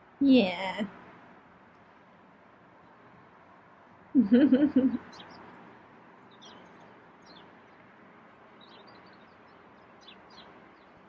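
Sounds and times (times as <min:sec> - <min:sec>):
steady background hiss: 0:00.0 - 0:11.0
faint bird chirps: 0:08.6 - 0:11.0.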